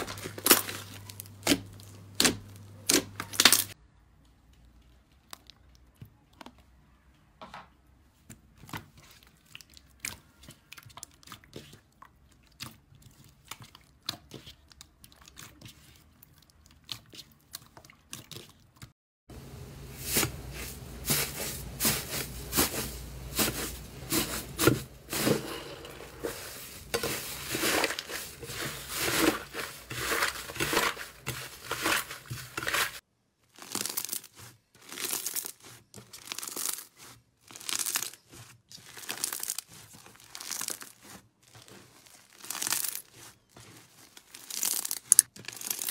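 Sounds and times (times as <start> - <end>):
foam bead slime crunching: 0.0 - 3.8, 20.0 - 45.9
slime crackling and tearing: 0.0 - 3.8, 26.9 - 45.9.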